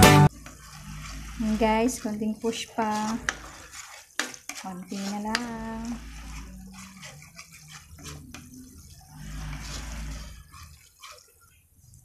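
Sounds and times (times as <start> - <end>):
hissing sizzle: 0.1 - 12.0
metal spatula scraping pan: 0.2 - 12.0
spatula tapping pan: 0.3 - 8.8.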